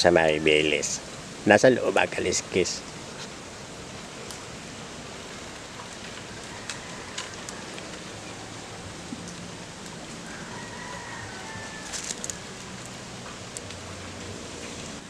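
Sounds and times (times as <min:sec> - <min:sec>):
steady outdoor hiss: 0:00.0 - 0:15.0
leaves snapping and rustling: 0:04.1 - 0:04.6, 0:05.2 - 0:15.0.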